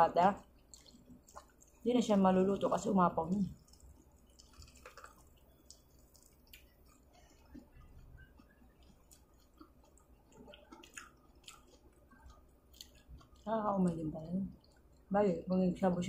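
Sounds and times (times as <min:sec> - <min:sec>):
soft chewing: 0:00.2 - 0:16.0.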